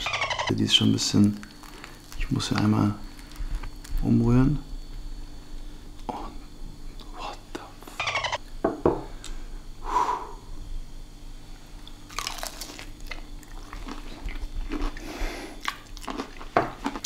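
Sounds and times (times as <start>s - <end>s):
chewing crispy fried chicken: 1.2s - 4.0s, 11.8s - 17.0s.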